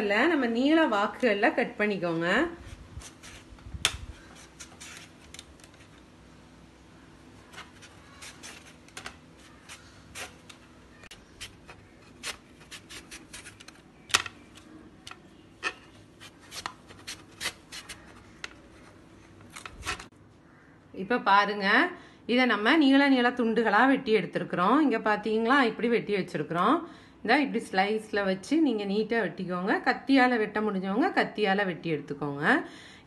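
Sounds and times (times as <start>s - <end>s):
vegetable scraping across slicer blade: 2.6s - 5.4s, 7.5s - 10.6s, 11.3s - 13.7s, 15.6s - 18.1s.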